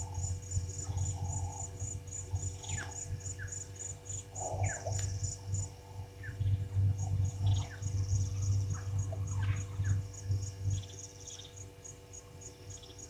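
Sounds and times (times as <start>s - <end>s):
insect trilling in pulses: 0.0s - 11.6s
low steady rumble: 0.0s - 13.0s.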